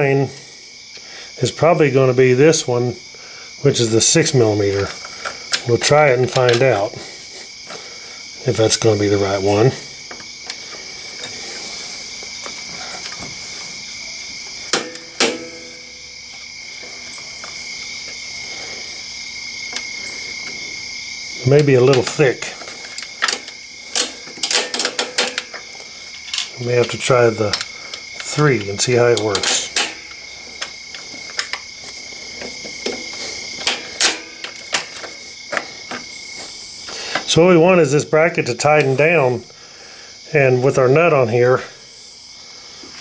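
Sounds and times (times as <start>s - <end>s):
high-pitched background whine: 0.0s - 43.0s
metal parts handled: 4.7s - 6.9s, 10.1s - 13.8s, 14.7s - 16.1s, 21.5s - 36.0s
small metal clicks and knocks: 21.6s - 31.7s, 32.3s - 36.0s.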